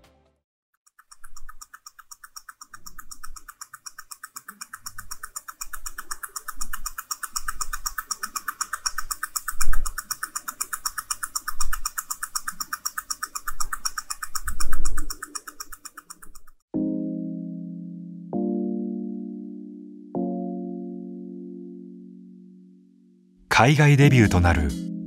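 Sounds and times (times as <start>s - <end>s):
mechanical watch ticking: 0.8s - 16.7s.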